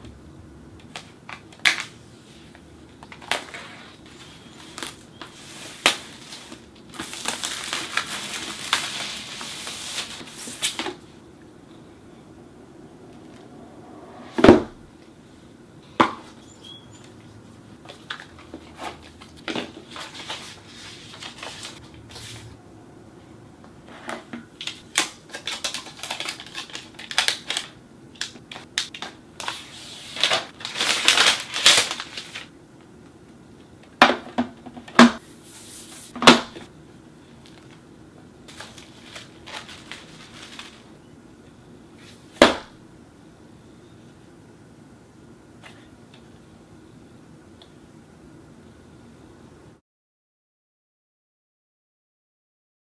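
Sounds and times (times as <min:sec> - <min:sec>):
paper and plastic crinkling: 0:00.9 - 0:11.0, 0:17.8 - 0:22.5, 0:24.6 - 0:32.5, 0:38.5 - 0:41.0.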